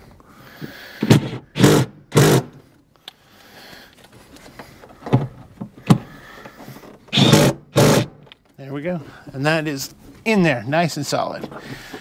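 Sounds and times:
power driver bursts: 0:01.0 - 0:02.6, 0:07.1 - 0:08.2.

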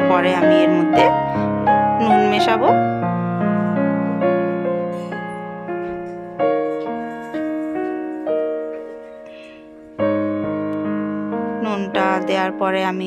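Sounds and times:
slow piano music: 0:00.0 - 0:13.0.

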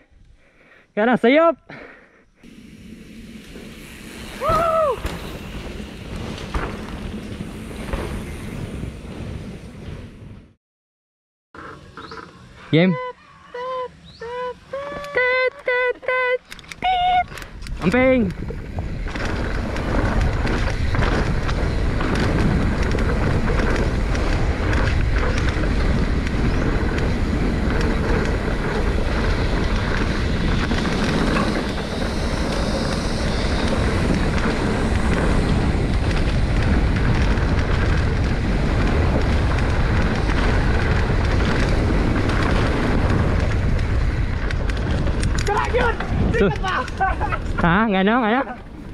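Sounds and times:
mountain bike rumble and rattle: 0:02.4 - 0:10.6, 0:11.6 - 0:12.6, 0:15.2 - 0:48.9
wind buffeting microphone: 0:16.7 - 0:48.9.

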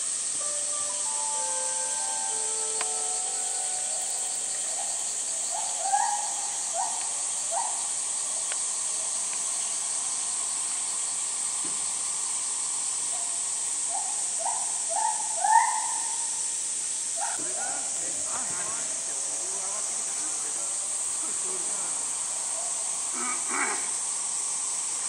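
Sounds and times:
cicadas droning: 0:00.0 - 0:25.0
short rising calls: 0:00.4 - 0:07.0.

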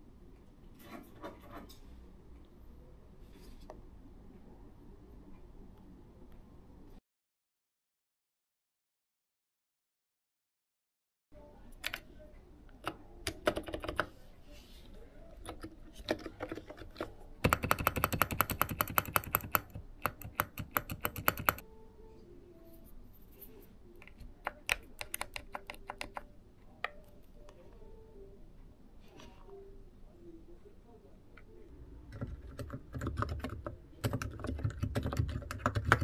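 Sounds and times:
keyboard typing: 0:12.8 - 0:14.2, 0:15.4 - 0:21.6, 0:24.0 - 0:27.1, 0:32.1 - 0:36.0.

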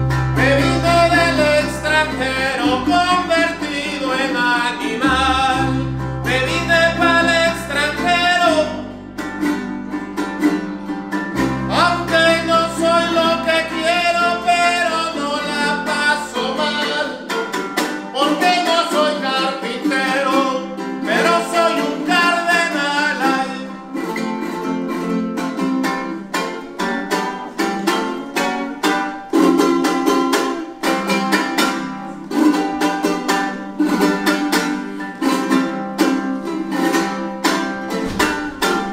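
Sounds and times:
plucked bass guitar: 0:00.0 - 0:38.9
strummed guitars: 0:00.0 - 0:38.9
man singing: 0:00.3 - 0:09.0, 0:11.6 - 0:24.1.

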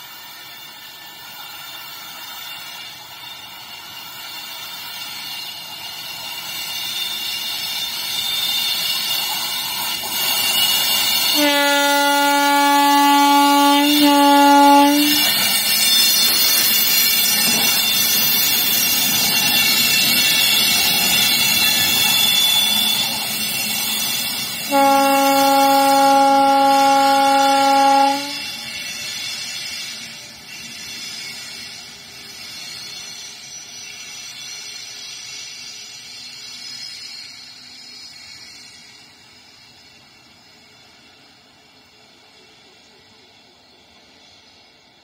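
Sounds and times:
electric locomotive passing: 0:00.0 - 0:45.0
locomotive horn blast: 0:11.3 - 0:15.4, 0:24.7 - 0:28.6.

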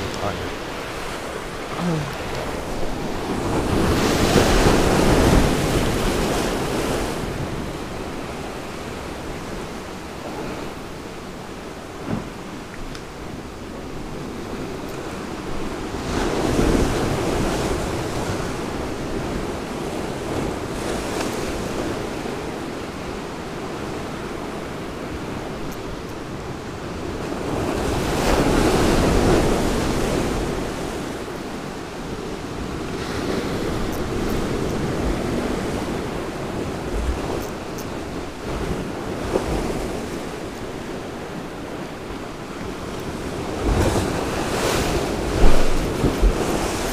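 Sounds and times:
sea waves washing ashore: 0:00.0 - 0:46.9
wind blowing over microphone: 0:42.6 - 0:46.9.

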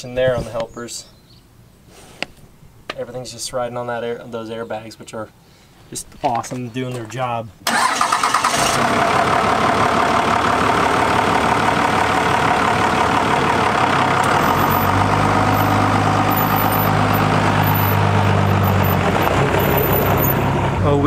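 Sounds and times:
diesel truck engine: 0:07.6 - 0:21.0.

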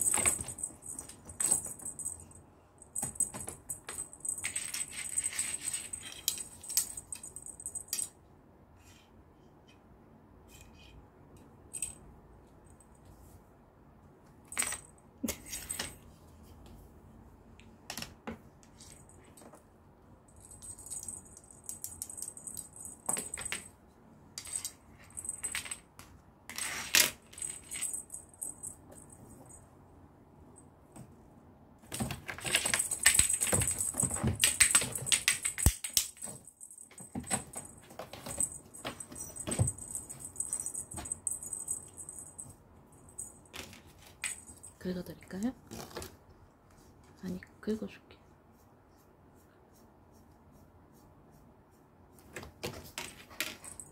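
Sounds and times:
cat toy jingling: 0:00.0 - 0:08.0, 0:32.4 - 0:43.5.

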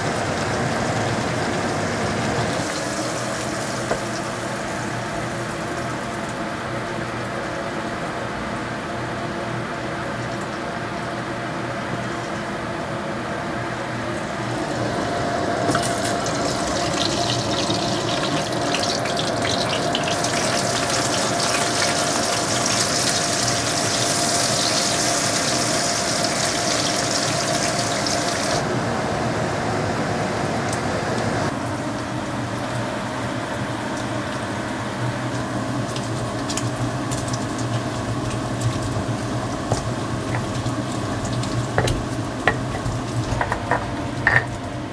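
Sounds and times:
fish sizzling in oil: 0:00.0 - 0:06.5, 0:15.7 - 0:28.6.

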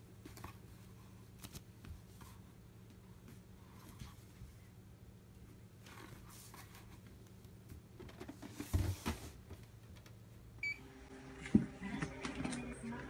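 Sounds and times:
cardboard rustling and scraping: 0:05.8 - 0:07.2, 0:08.0 - 0:09.7.

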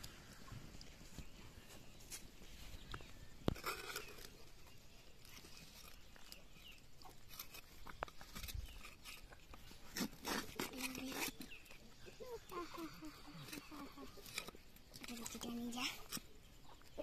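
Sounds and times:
metal scraper scraping: 0:07.3 - 0:11.8.

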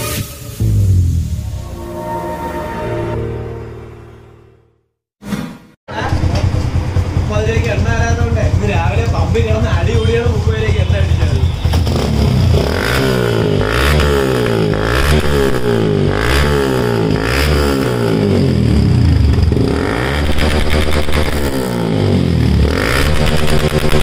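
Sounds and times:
motorcycle engine revving: 0:05.9 - 0:24.0.

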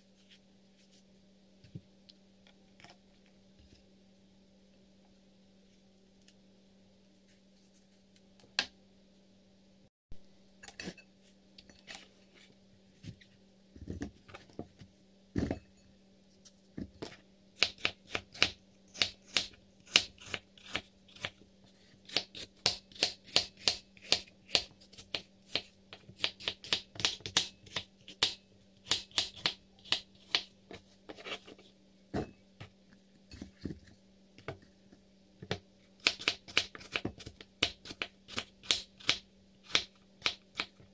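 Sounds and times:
faint steady hum: 0:00.0 - 0:40.9
knife slicing apples on board: 0:22.1 - 0:31.6.

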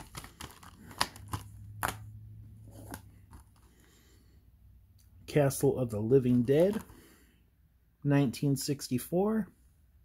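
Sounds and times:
plastic cases clicking: 0:00.0 - 0:02.0, 0:06.3 - 0:07.0.

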